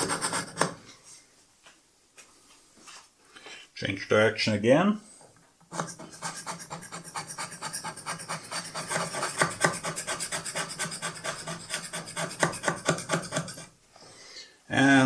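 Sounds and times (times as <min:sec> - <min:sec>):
hand scraper scraping metal: 0:00.0 - 0:00.8, 0:05.7 - 0:13.8.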